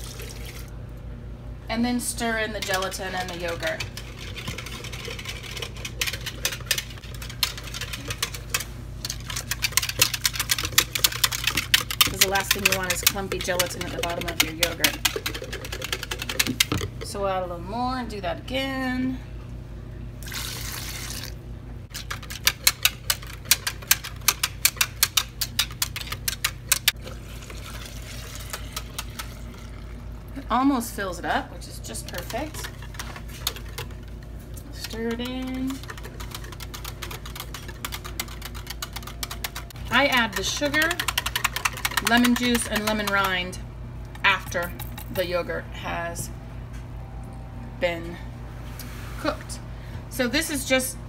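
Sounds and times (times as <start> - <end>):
whisk clicking against bowl: 2.6 - 16.8, 22.0 - 27.0, 34.8 - 43.4
milk pouring from pot: 27.0 - 30.4.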